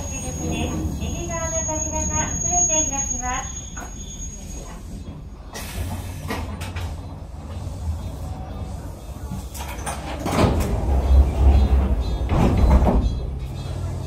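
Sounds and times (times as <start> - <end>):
train car low rumble: 0.0 - 14.0
knocks and clatter: 9.5 - 13.4.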